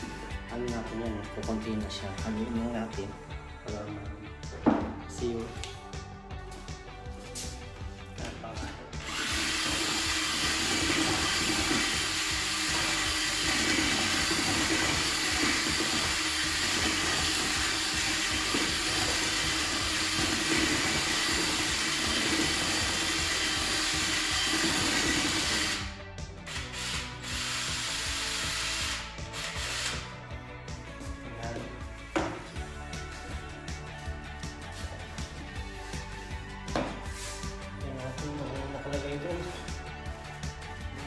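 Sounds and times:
drill mixing paint: 9.0s - 30.3s.

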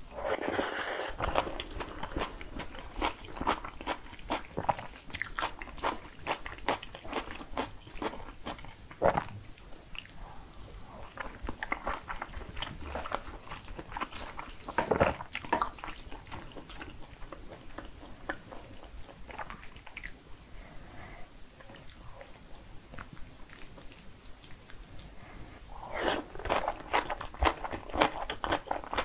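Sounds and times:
wet chewing and mouth clicks: 1.2s - 10.2s, 21.6s - 29.0s.

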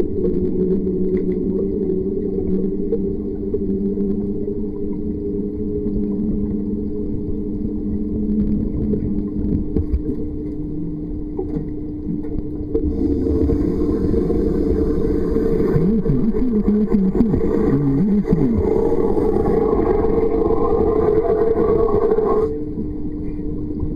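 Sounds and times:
underwater low hum: 0.0s - 23.9s
steady tones: 12.5s - 23.6s.

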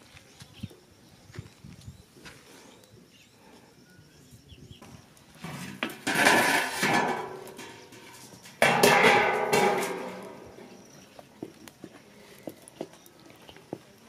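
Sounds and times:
metal wok lid clanging: 5.6s - 10.4s.

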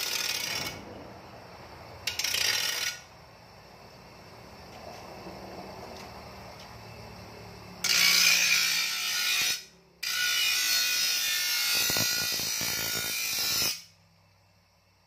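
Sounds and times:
grinder grinding steel: 0.0s - 1.0s, 2.1s - 3.1s, 7.8s - 13.9s.

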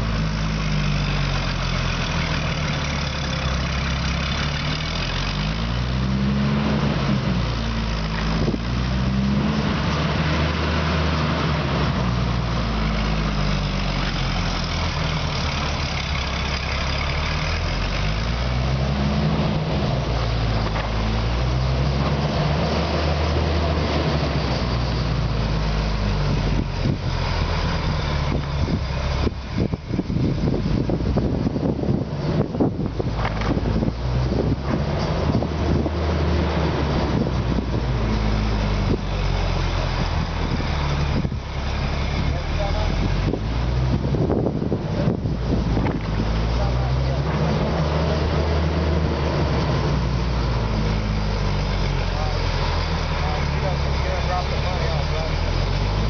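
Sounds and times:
pumpjack engine running: 12.2s - 18.7s, 49.2s - 56.0s.

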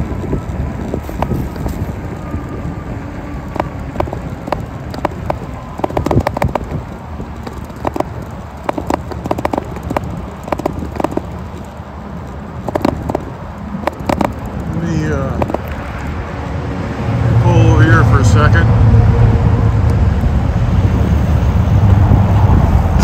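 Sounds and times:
bike clicks and rattles: 0.0s - 16.2s
tyres and wind rumble: 0.0s - 23.0s.

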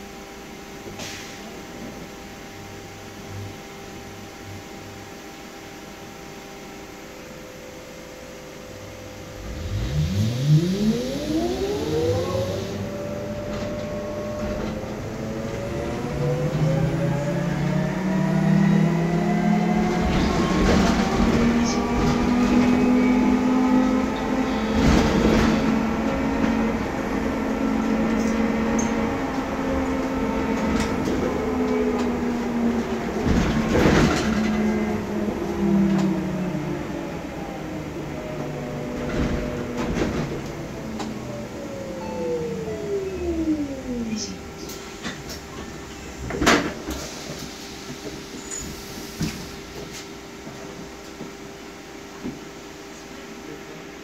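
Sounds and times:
electric bus motor whine: 0.0s - 53.8s
bus body knocks and rattles: 33.1s - 34.7s.

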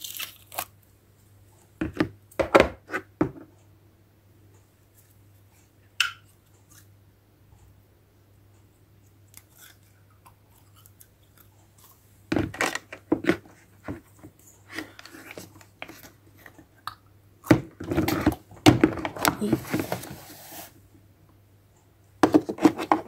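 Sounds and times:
plastic knocks and rustles: 1.8s - 3.5s, 12.3s - 14.4s, 17.5s - 20.2s, 22.2s - 23.0s.

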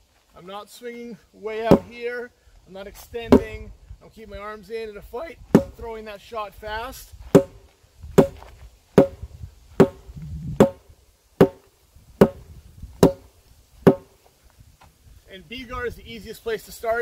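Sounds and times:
wooden sword striking tires: 1.6s - 2.0s, 5.5s - 5.8s, 7.3s - 14.2s.

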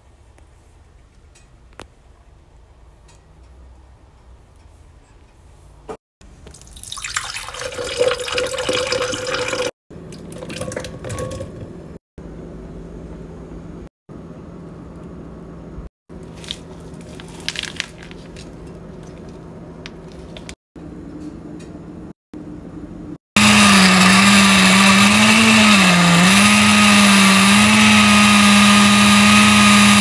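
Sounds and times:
water running from a tap: 6.6s - 9.7s.

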